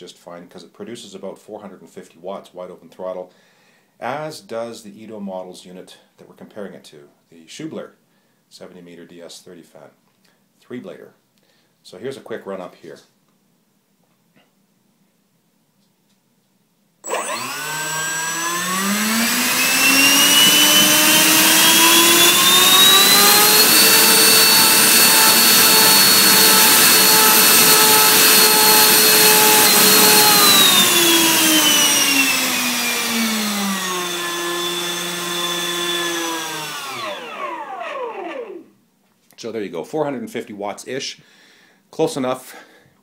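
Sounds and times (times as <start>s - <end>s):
electric fan whine: 17.0s - 38.7s.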